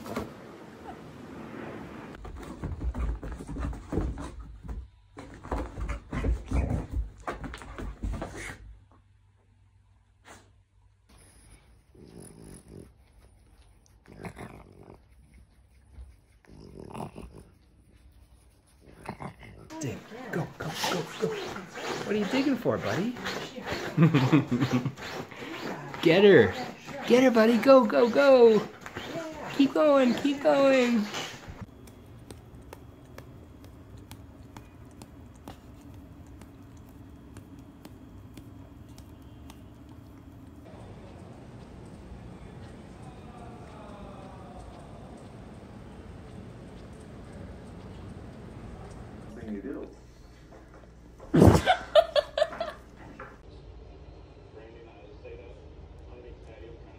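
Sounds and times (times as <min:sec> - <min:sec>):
steady low hum: 0:10.7 - 0:56.9
dog growling and grunting: 0:11.9 - 0:13.0, 0:14.0 - 0:15.2, 0:16.5 - 0:17.6.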